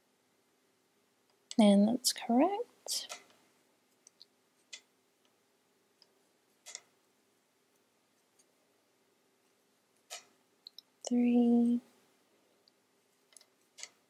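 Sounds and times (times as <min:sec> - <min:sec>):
wooden knitting needles clicking: 0:02.9 - 0:05.4, 0:06.0 - 0:07.0, 0:10.0 - 0:11.2, 0:12.6 - 0:14.0.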